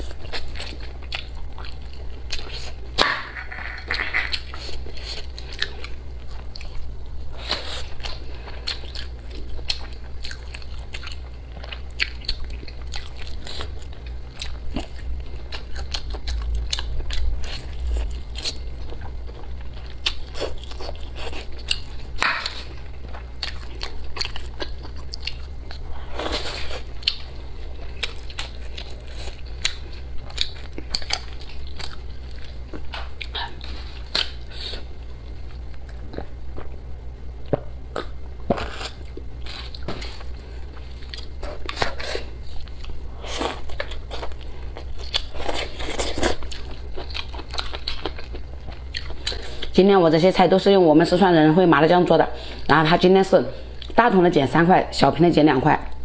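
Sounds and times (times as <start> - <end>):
chewing and biting: 0.0 - 36.8, 37.4 - 49.8
low hum: 0.0 - 52.9.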